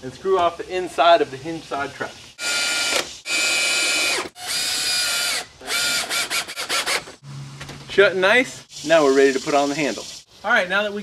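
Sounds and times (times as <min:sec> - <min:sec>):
cordless drill motor whining: 0:02.4 - 0:07.1.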